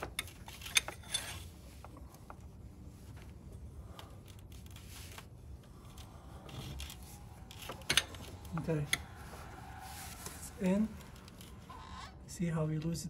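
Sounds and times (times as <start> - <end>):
metal tools clicking: 0.0 - 1.5, 5.9 - 9.1
faint rubbing: 1.0 - 12.4.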